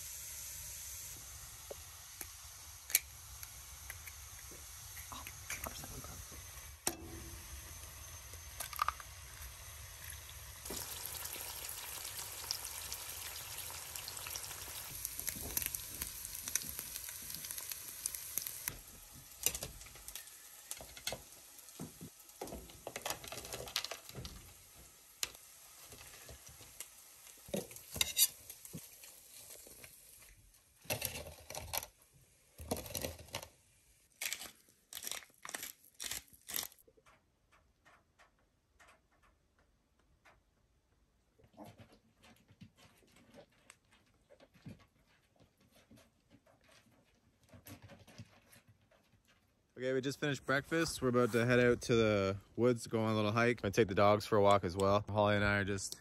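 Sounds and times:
eggs sizzling in a skillet: 0.0s - 30.3s
metal spatula clicks and scrapes: 28.0s - 28.6s.

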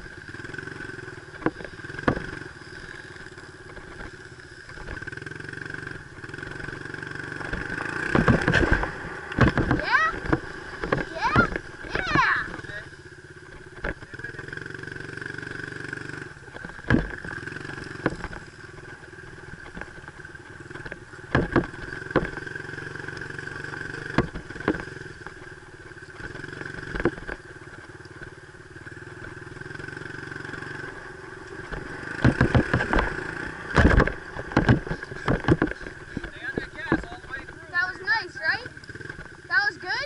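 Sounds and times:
dirt bike engine running: 0.0s - 40.0s
sharp knocks and rattles: 0.0s - 40.0s.

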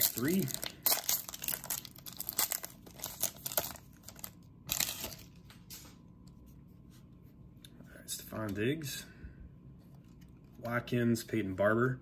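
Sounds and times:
wrapper tearing and crackling: 0.0s - 5.4s
cards rustling: 0.0s - 6.0s.

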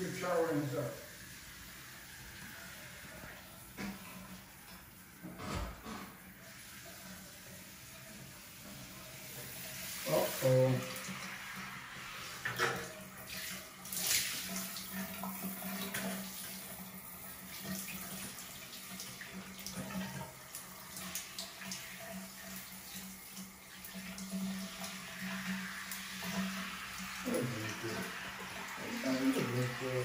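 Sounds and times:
shower water spraying on tile: 0.0s - 5.3s, 6.1s - 30.0s
water splashes: 9.2s - 30.0s.

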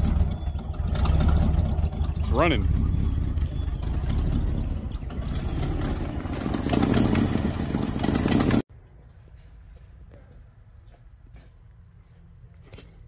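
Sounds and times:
truck engine running: 0.0s - 8.6s.

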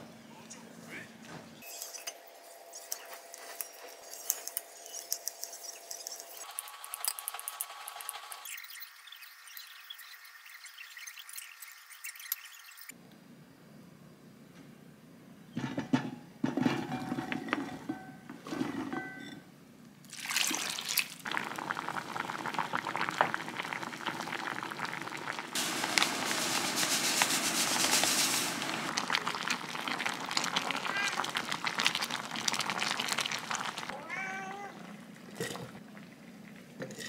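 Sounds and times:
pot and utensils clattering: 15.6s - 19.5s, 36.8s - 37.0s
water pouring into pot: 20.1s - 33.9s.

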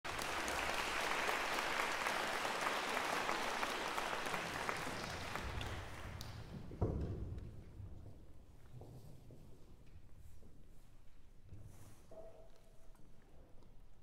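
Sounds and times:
audience applause: 0.0s - 6.5s.

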